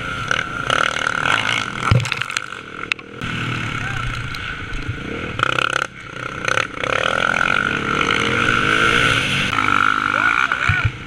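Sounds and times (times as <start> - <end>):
dirt bike engine revving: 0.0 - 11.0.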